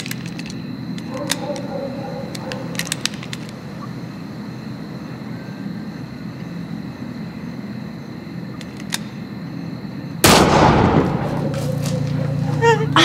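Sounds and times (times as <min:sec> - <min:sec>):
loud pistol shot: 0:10.2 - 0:11.8.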